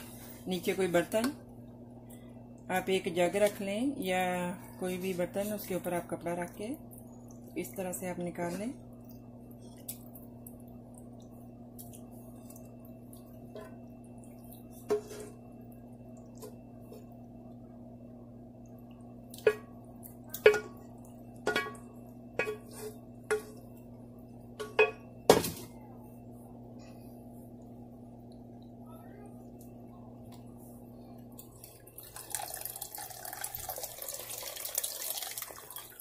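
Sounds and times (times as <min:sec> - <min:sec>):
steady low hum: 0:00.0 - 0:34.2
cookware clinking against glass jug: 0:21.5 - 0:23.6, 0:24.6 - 0:25.0.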